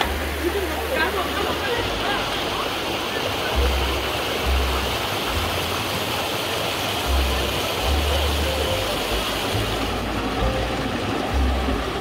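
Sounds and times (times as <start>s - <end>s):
stream rushing over rocks: 0.0s - 12.0s.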